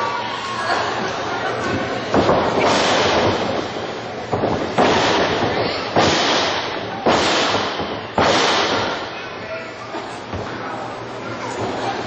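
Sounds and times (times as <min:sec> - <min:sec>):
loud sharp impacts echoing: 0:01.8 - 0:10.6.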